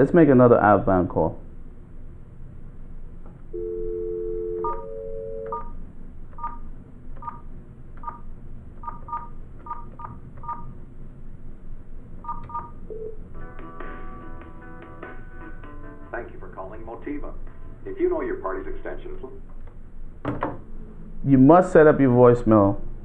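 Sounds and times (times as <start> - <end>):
phone ringback tone: 3.5 - 5.8, 12.2 - 13.2
two-tone dial tone: 3.6 - 5.7, 12.2 - 13.2
keypad beeps: 4.5 - 5.8, 6.4 - 6.6, 7.2 - 7.4, 8.0 - 8.2, 8.8 - 10.7, 12.2 - 13.1.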